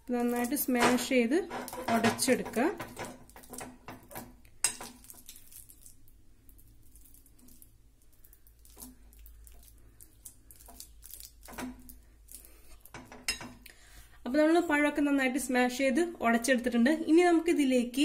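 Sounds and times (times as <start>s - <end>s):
squishing and scraping: 0.0s - 13.7s
spatula knocking bowl: 0.6s - 5.0s.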